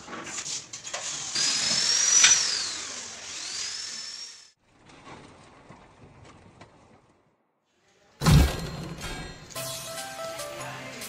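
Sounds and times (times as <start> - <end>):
electric drill whining: 1.0 - 4.6.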